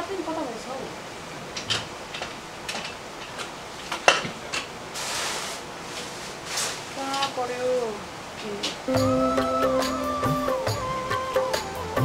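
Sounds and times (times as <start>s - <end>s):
brief rustle: 5.0s - 7.4s.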